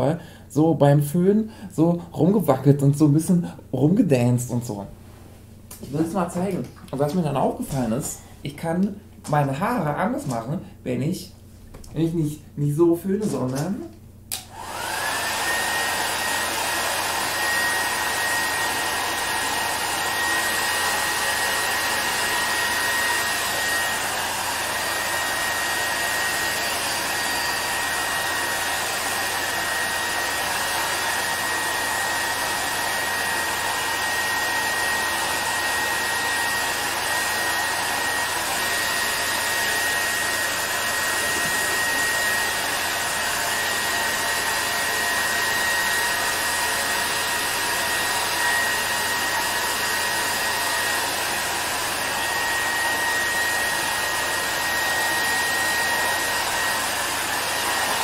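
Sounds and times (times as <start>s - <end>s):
hair dryer motor whine: 13.2s - 58.0s.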